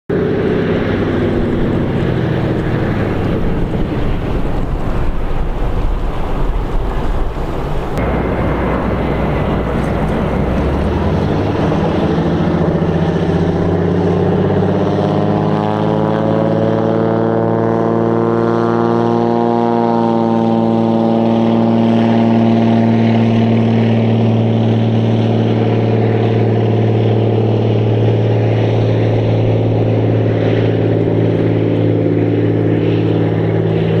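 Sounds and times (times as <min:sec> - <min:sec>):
floatplane engine and propeller drone: 0:00.1 - 0:34.0.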